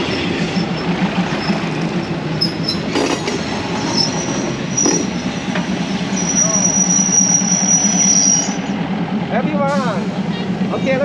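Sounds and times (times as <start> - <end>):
train wheels rumbling on rails: 0.0 - 11.0
high-pitched wheel squeals: 0.1 - 8.7.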